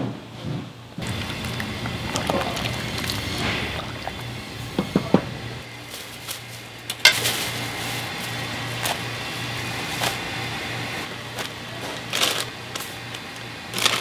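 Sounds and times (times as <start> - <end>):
low pulsing hum: 1.0 - 14.0
plastic bag rustling: 5.7 - 10.4, 11.3 - 14.0.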